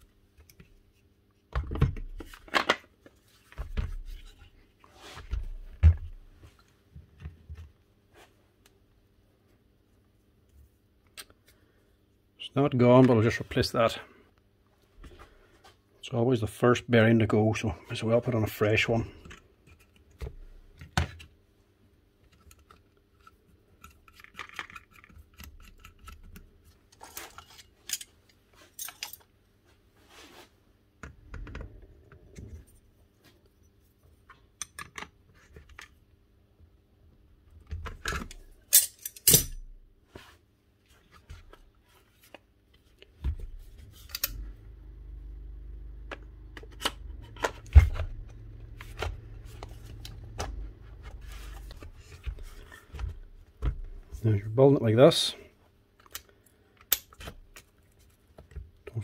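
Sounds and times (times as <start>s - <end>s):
low steady hum: 0.0s - 59.0s
metal parts clicking and clinking: 27.0s - 29.3s, 38.1s - 39.7s.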